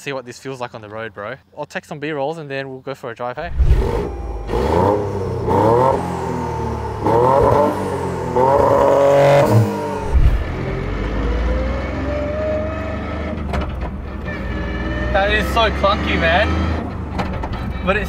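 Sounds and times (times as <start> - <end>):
car engine revving: 3.4 - 14.0
gear whine: 3.5 - 5.6
low engine drone: 3.5 - 7.2, 9.8 - 11.4
gearbox clunk: 13.4 - 14.2, 16.9 - 17.8.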